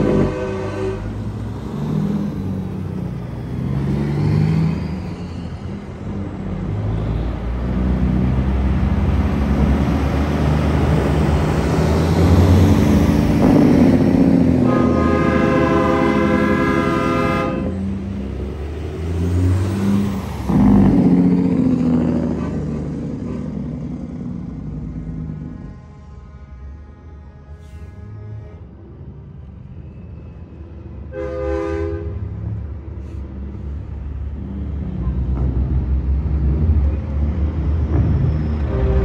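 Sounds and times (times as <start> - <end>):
truck horn: 0.0 - 1.3, 13.5 - 18.0, 24.8 - 28.9, 31.0 - 32.4, 38.6 - 39.0
truck diesel engines revving: 0.0 - 29.1, 30.4 - 39.0.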